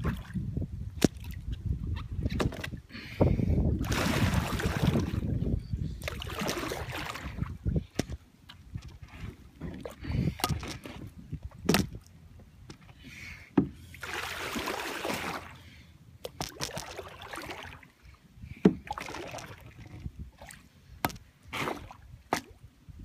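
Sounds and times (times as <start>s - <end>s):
paddle splashing in water: 6.0s - 7.6s, 13.6s - 15.6s, 18.6s - 20.7s.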